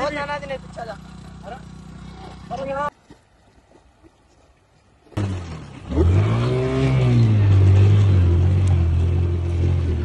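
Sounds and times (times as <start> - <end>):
motorcycle engine running: 0.0 - 2.9.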